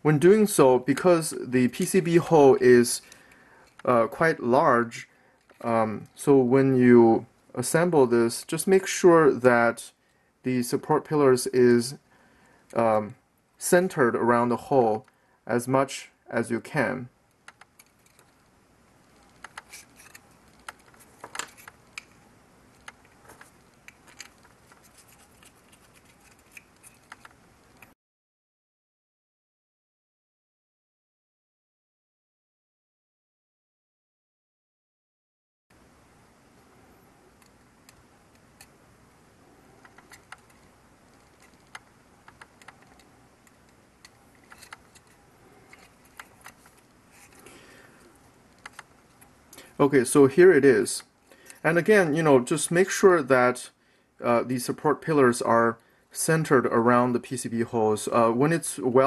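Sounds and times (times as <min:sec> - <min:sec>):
faint plastic clicks and ticks: 0:17.3 - 0:27.9, 0:37.3 - 0:38.8, 0:39.7 - 0:49.7.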